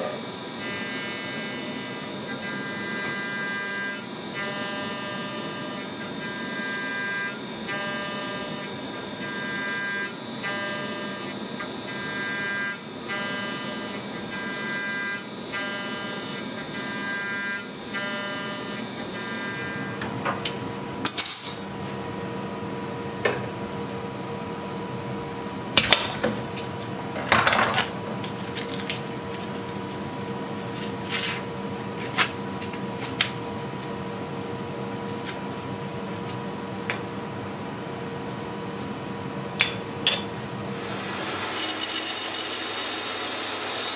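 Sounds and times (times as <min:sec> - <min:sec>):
end mill cutting whine: 0:00.0 - 0:21.0, 0:39.2 - 0:43.9.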